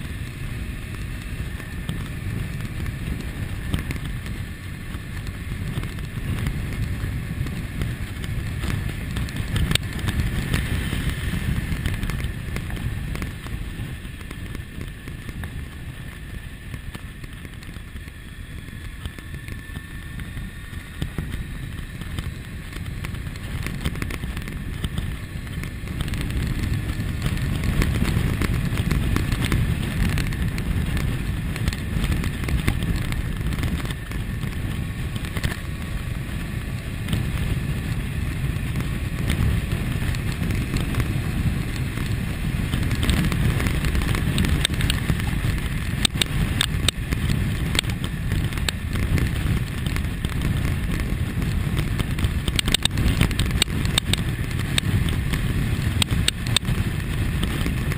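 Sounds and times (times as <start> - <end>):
motorcycle engine running: 0.0 - 57.9
wind rushing over microphone: 0.0 - 57.9
small clicks: 42.7 - 57.9.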